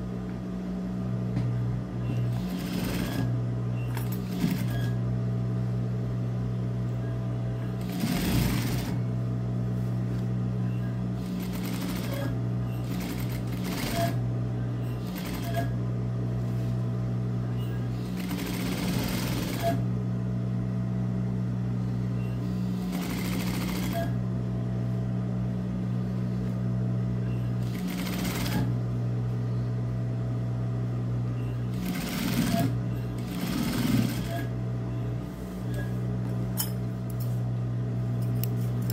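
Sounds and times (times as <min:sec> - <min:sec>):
steady low hum: 0:00.0 - 0:38.9
sewing machine stitching: 0:02.3 - 0:03.3, 0:04.0 - 0:05.0, 0:07.8 - 0:09.0, 0:11.2 - 0:14.2, 0:18.0 - 0:19.8, 0:22.8 - 0:24.1, 0:27.6 - 0:28.8, 0:31.7 - 0:34.5.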